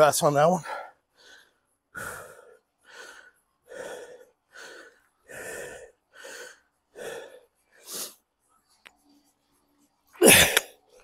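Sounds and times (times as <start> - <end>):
man panting heavily: 0.5 - 8.3.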